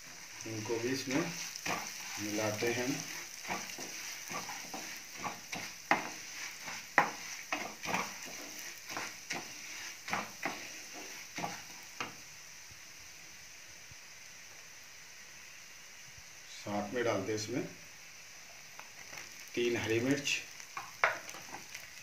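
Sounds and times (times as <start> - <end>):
spatula stirring and scraping pan: 0.0 - 12.3, 18.9 - 22.0
spices sizzling in oil: 0.0 - 22.0.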